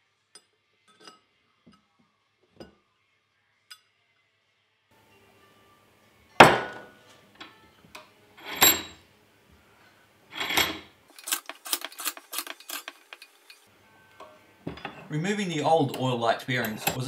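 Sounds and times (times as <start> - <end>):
metal-on-metal knocks: 6.4 - 6.9, 14.2 - 15.1.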